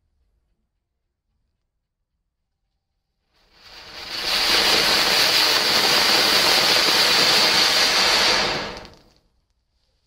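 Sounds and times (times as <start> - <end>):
fountain firecracker hissing: 3.4 - 9.2.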